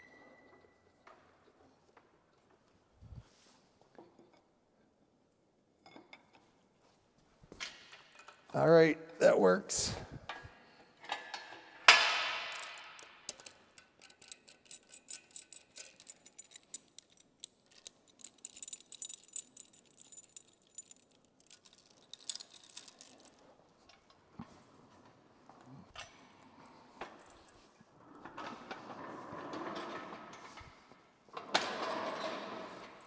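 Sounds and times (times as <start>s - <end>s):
metal chain clinking and rattling: 7.6s - 8.7s, 12.0s - 24.1s, 25.5s - 28.0s, 31.4s - 33.0s.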